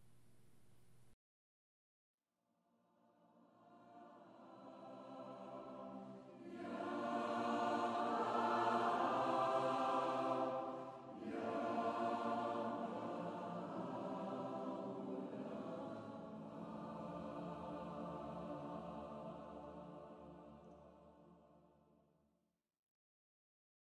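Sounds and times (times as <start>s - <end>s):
choir singing sustained chords: 3.1s - 21.8s.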